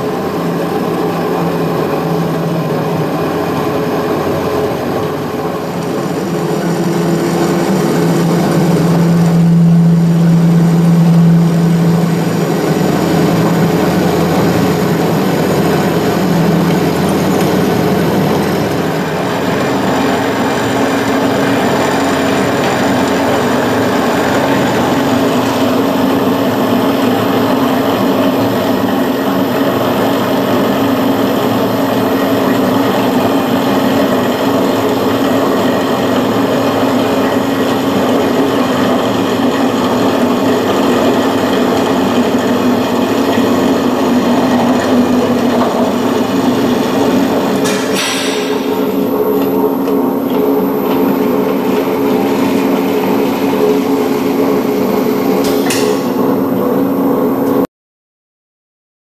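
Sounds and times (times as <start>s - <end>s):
circular saw cutting metal: 1.1s - 20.4s.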